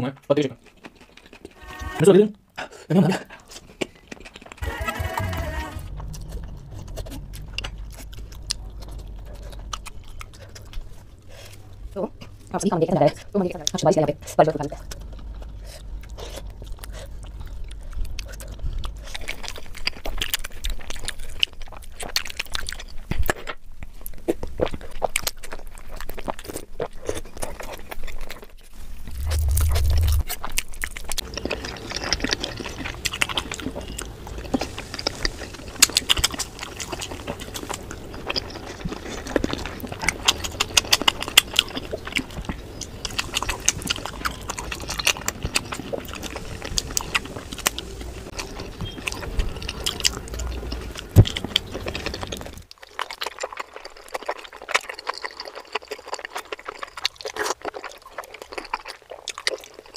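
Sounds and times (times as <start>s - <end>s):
biting and wet chewing: 0.2s - 1.9s, 3.1s - 59.9s
low rumble: 4.6s - 21.8s, 28.8s - 52.6s.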